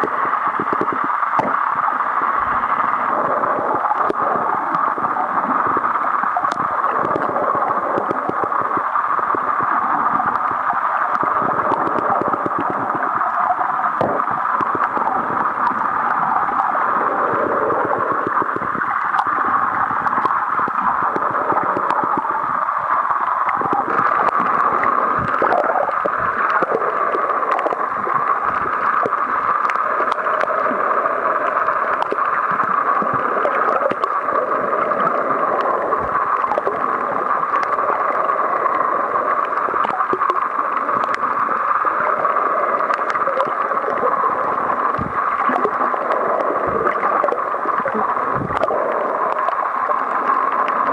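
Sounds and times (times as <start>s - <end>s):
underwater rushing water: 0.0s - 50.9s.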